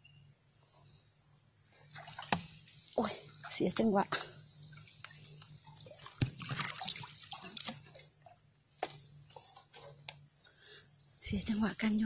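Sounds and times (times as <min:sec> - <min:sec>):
water splashing and dripping: 0:01.9 - 0:10.0.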